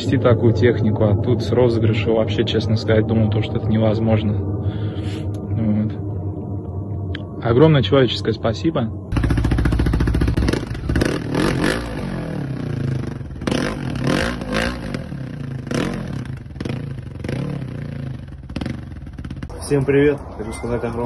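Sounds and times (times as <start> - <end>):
dirt bike engine revving: 9.1 - 19.5.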